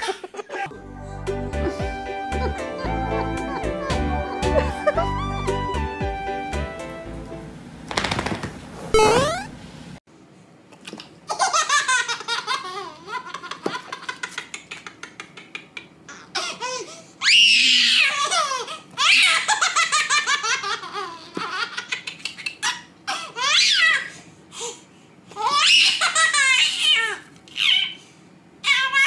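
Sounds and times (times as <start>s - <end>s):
baby laughing and squealing: 16.1s - 24.2s, 25.4s - 28.0s.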